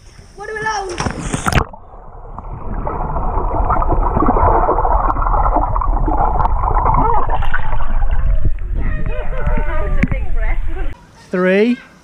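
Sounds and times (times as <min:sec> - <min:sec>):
splash into swimming pool: 0:00.9 - 0:08.5
underwater bubbling and rushing: 0:01.1 - 0:11.0.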